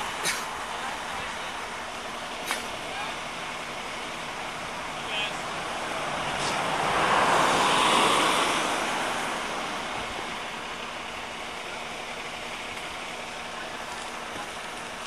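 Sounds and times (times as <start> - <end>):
car driving past: 5.5 - 10.0.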